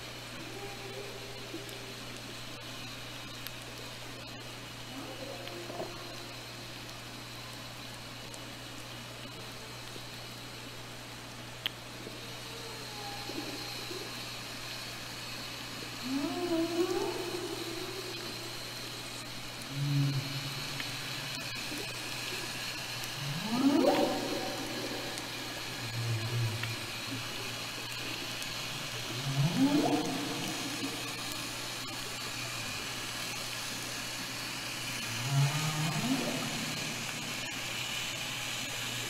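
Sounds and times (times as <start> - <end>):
steady hiss and hum: 0.0 - 39.0
killer whales calling underwater: 16.0 - 18.4, 23.1 - 27.0, 29.1 - 31.3, 35.2 - 37.5.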